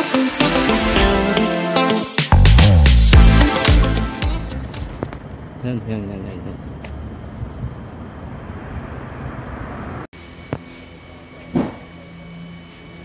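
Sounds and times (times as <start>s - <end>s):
traffic rumble: 4.7s - 10.1s.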